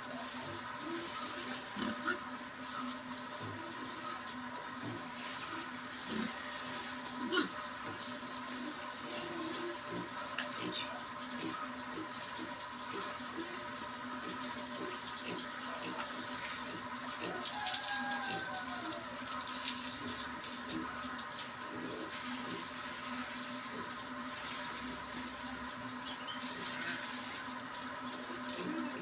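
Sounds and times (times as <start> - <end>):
hose water splashing on concrete: 0.0 - 29.0.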